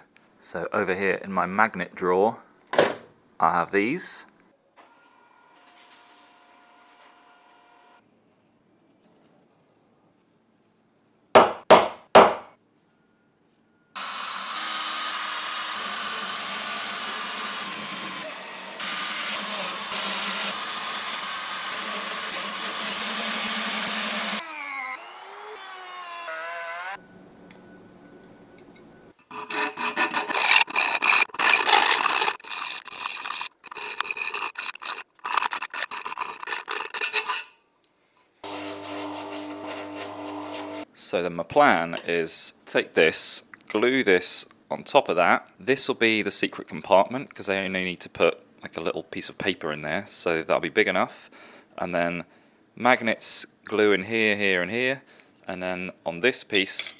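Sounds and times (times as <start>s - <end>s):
file rasping strokes: 29.3s - 37.5s.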